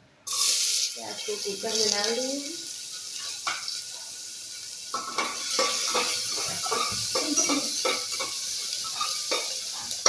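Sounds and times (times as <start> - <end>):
onion sizzling in hot oil: 0.2 - 10.0
metal spatula scraping pot: 5.0 - 10.0.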